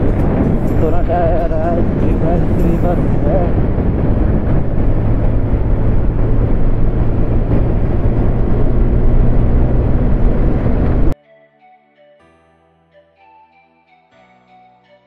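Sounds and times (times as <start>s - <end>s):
motorcycle engine droning: 0.0s - 11.2s
wind noise on microphone: 0.0s - 11.2s.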